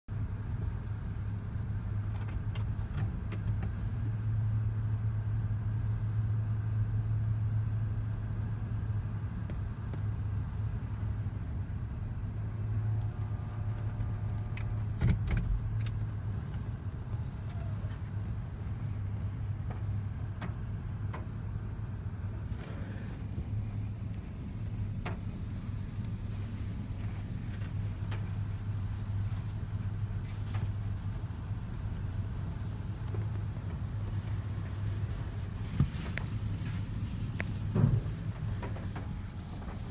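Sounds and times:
car engine humming: 0:00.1 - 0:39.9
thump: 0:37.7 - 0:39.1.

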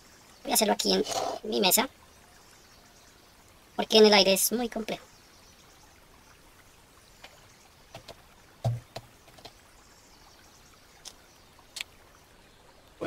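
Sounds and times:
faint steady hiss: 0:00.0 - 0:13.0
dull knock on tabletop: 0:08.6 - 0:09.1.

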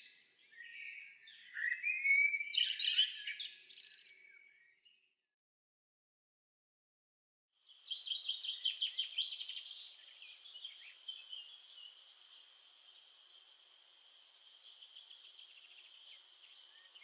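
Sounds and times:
birds chirping and trilling: 0:00.0 - 0:05.1, 0:07.6 - 0:17.0
insects chirring: 0:09.2 - 0:17.0.

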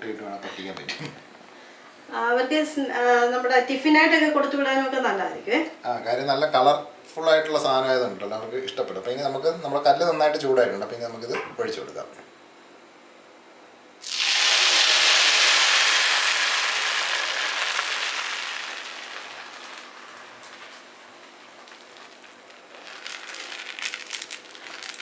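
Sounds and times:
batter sizzling on griddle: 0:14.0 - 0:25.0.

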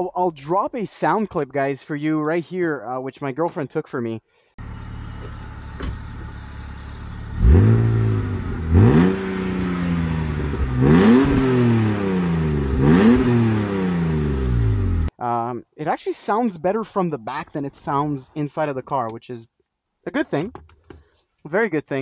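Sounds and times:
car engine idling and revving: 0:04.6 - 0:15.1.

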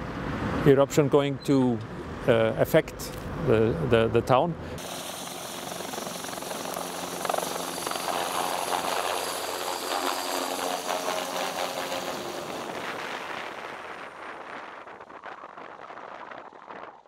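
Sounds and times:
helicopter rotor noise: 0:04.8 - 0:15.0
high turbine whine: 0:04.8 - 0:16.8.

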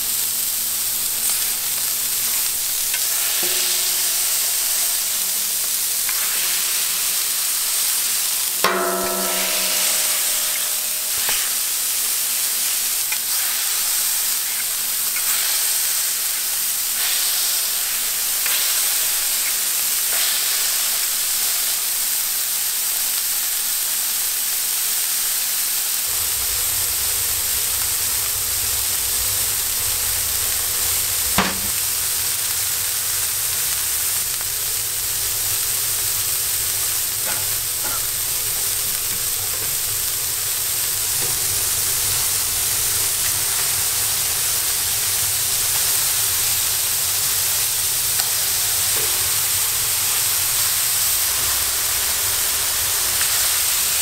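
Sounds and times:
meat sizzling on a griddle: 0:00.0 - 0:54.0
sharp knock: 0:31.4 - 0:31.8.

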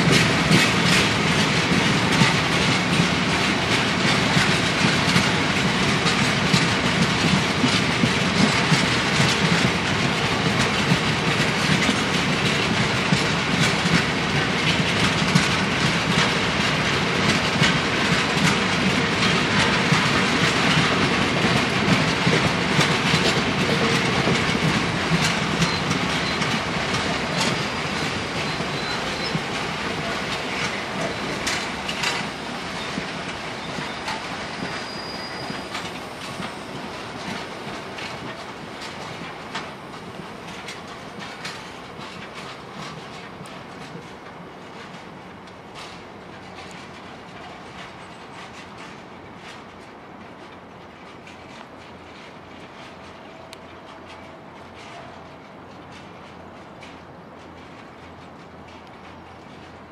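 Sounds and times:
freight train rolling past: 0:00.0 - 0:59.9
wheels clicking over rail joints: 0:00.0 - 0:59.9
thin wheel squeals: 0:33.6 - 0:35.8.

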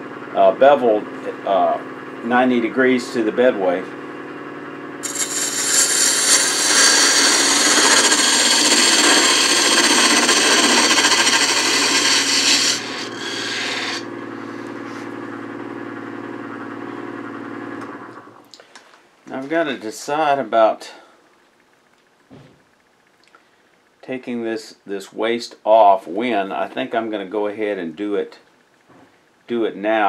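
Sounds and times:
gouge shaving hiss: 0:05.0 - 0:14.0
lathe motor hum: 0:05.0 - 0:16.8.

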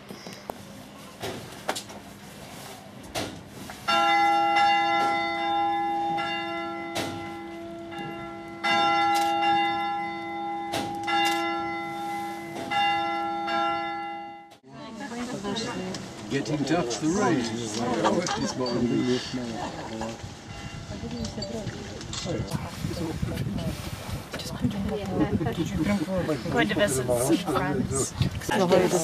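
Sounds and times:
church bell ringing: 0:03.8 - 0:14.6, 0:18.6 - 0:19.5.

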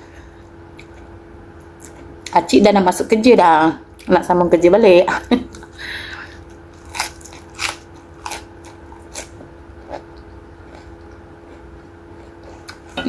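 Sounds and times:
lettuce crunching and chewing: 0:06.4 - 0:13.0.

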